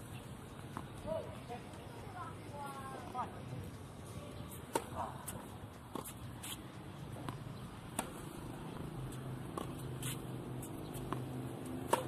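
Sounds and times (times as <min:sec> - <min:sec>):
tennis ball struck by rackets: 0:04.7 - 0:06.2, 0:07.2 - 0:08.4, 0:09.5 - 0:10.2, 0:10.9 - 0:12.0.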